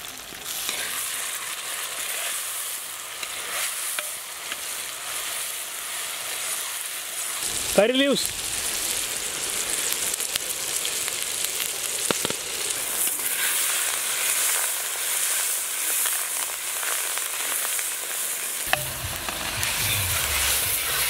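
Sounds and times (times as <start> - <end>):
vegetables sizzling in hot oil: 0.0 - 21.0
low rumble: 18.7 - 21.0.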